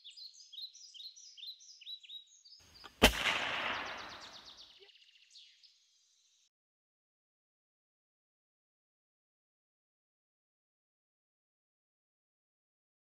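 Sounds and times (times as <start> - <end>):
bird trill: 0.0 - 5.8
birds chirping: 0.0 - 6.4
gunshot-like crack echoing: 2.8 - 4.5.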